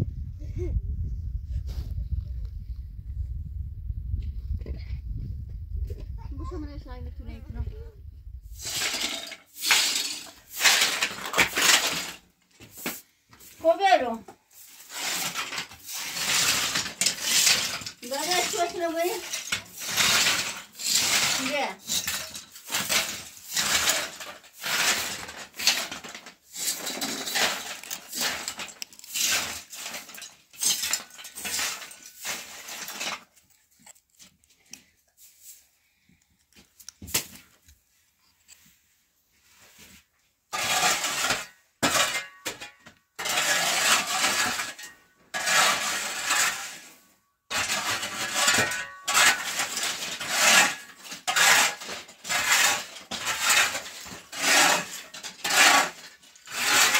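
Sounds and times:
broom sweeping concrete floor: 8.5s - 33.4s, 34.5s - 36.2s, 37.0s - 56.9s
shovel scraping concrete: 8.5s - 34.4s, 40.5s - 56.9s
wooden scraps clattering: 8.6s - 13.0s, 14.7s - 34.5s, 40.5s - 46.9s, 47.5s - 56.9s.

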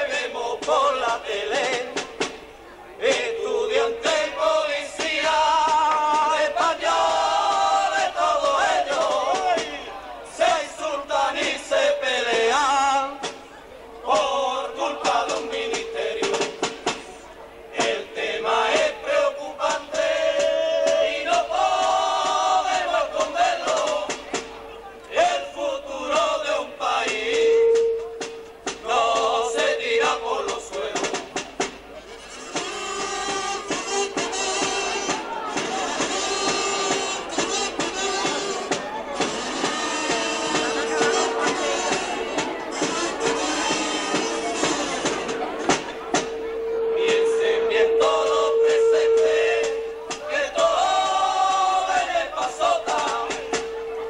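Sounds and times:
men singing together: 0.0s - 2.3s, 3.0s - 13.3s, 14.0s - 17.0s, 17.7s - 24.4s, 25.1s - 27.9s, 28.7s - 31.4s, 47.0s - 53.9s
percussion strikes: 0.0s - 54.0s.

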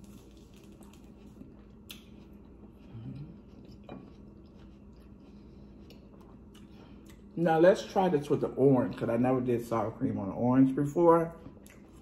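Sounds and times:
steady low hum: 0.0s - 12.0s
wet chewing clicks: 0.5s - 7.3s
person humming mm: 2.9s - 3.4s.

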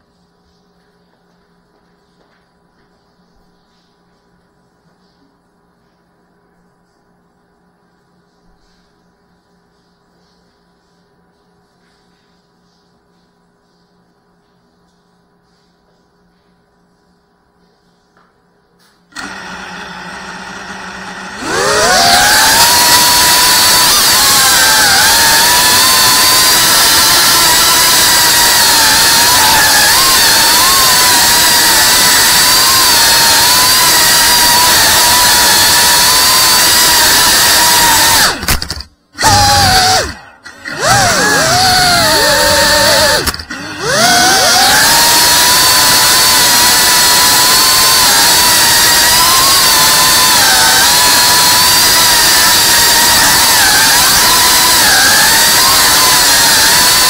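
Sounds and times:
quadcopter motors whining: 21.3s - 57.0s.

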